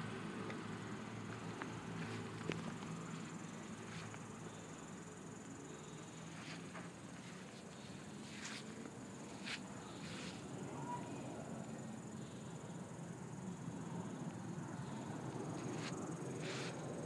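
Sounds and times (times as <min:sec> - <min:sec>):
crickets trilling: 0:00.0 - 0:17.0
soft rustles: 0:06.2 - 0:10.5, 0:15.6 - 0:16.9.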